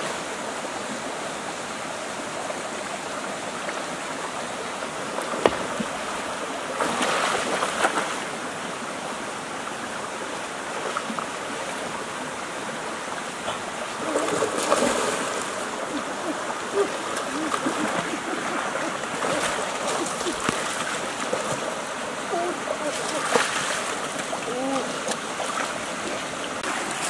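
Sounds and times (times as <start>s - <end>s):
shallow stream running: 0.0s - 27.0s
people wading and splashing: 13.3s - 27.0s.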